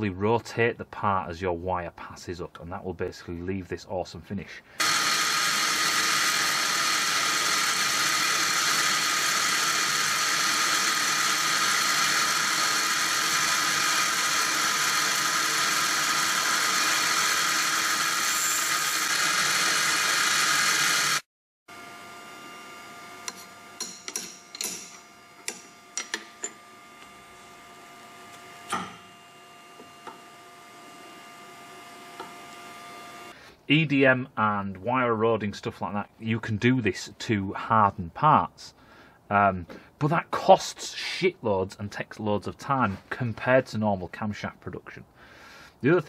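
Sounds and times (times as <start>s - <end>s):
machine hum: 4.8s - 33.4s.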